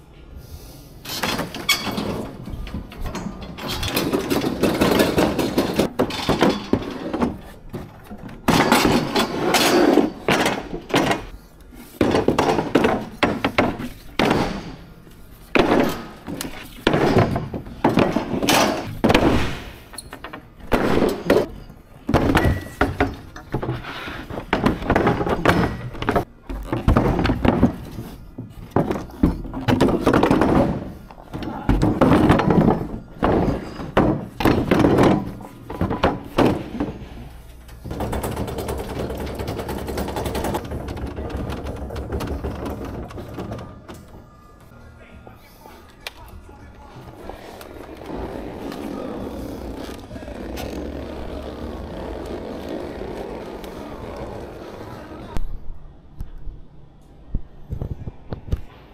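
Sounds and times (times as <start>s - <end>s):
metal cart rolling on concrete: 1.1s - 11.3s, 31.9s - 44.2s, 47.2s - 55.4s
wood knocking and scraping: 37.8s - 44.3s.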